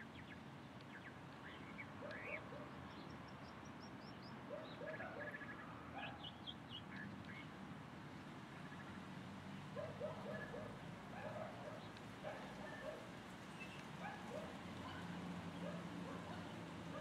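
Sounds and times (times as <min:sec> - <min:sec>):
birds chirping: 0:00.0 - 0:07.6, 0:09.8 - 0:17.0.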